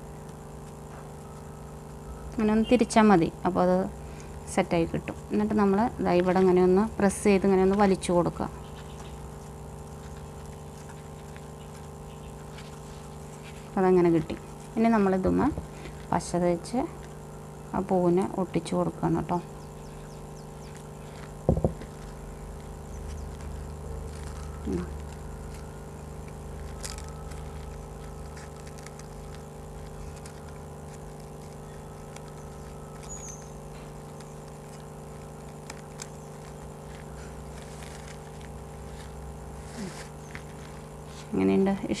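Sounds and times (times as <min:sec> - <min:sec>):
steady tonal hum: 0:00.0 - 0:42.0
sharp knock: 0:21.5 - 0:21.8.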